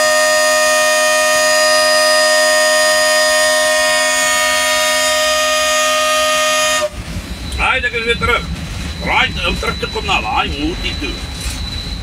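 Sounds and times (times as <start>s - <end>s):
locomotive air horn blast: 0.0s - 7.1s.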